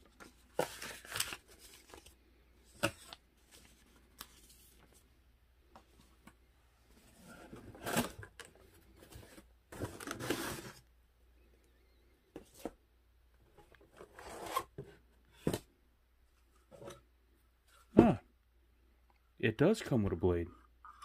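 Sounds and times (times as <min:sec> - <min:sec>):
cardboard scraping and rustling: 0:08.9 - 0:10.8.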